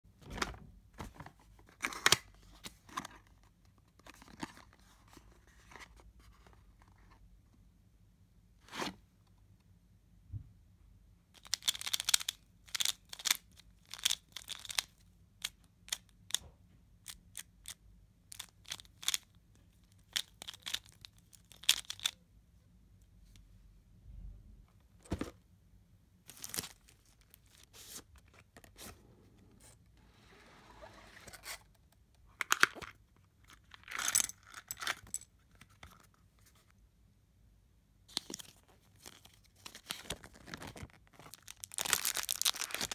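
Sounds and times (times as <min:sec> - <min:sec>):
paper packaging rustling and tearing: 0:26.3 - 0:28.1, 0:38.2 - 0:42.9.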